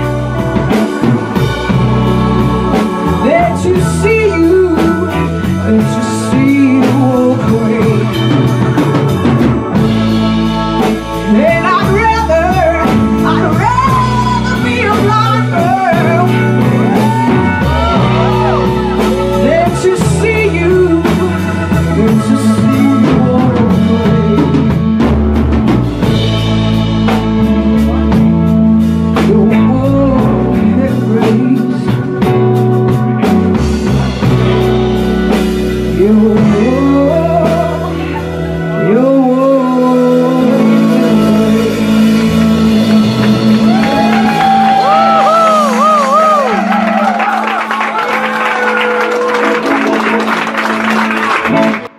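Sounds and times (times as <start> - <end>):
electric guitar: 0.0 - 51.9
keyboard: 0.0 - 51.9
woman singing: 1.8 - 9.3, 10.8 - 25.0, 29.2 - 32.5, 35.8 - 46.7.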